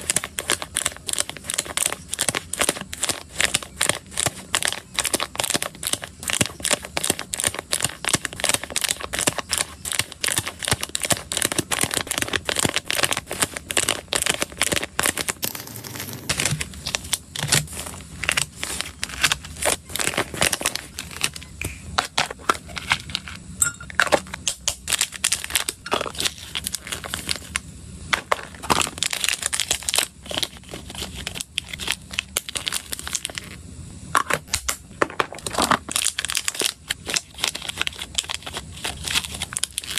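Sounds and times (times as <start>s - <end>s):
plastic packaging crinkling: 0.0s - 23.4s, 24.0s - 27.6s, 28.2s - 33.6s, 34.6s - 39.9s.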